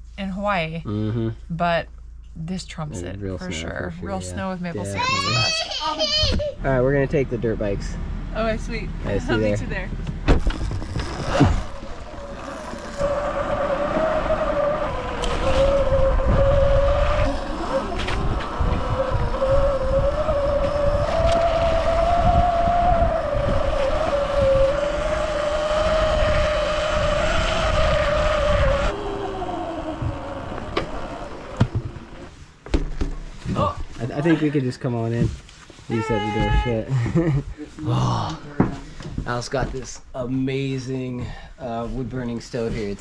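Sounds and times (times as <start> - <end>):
low rumble from riding: 0.0 - 32.6
dirt bike motor humming: 9.1 - 34.3.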